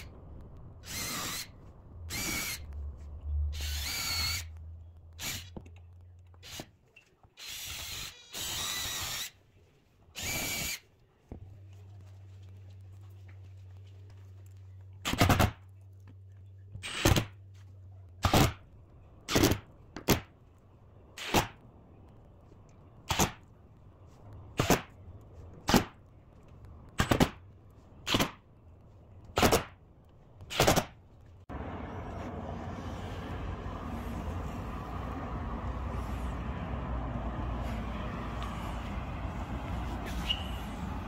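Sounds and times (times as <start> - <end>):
low hum: 31.3 - 41.0.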